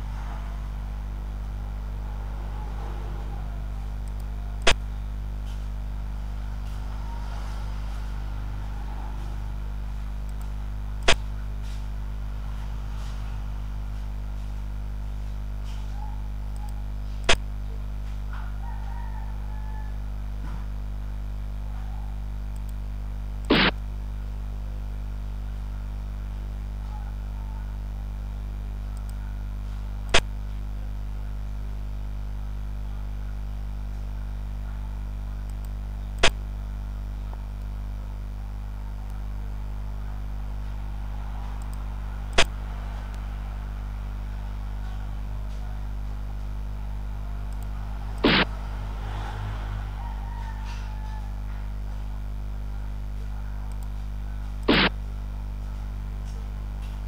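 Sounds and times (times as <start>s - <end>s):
steady low drone: 0.0s - 17.5s
buzzing tone: 0.0s - 57.0s.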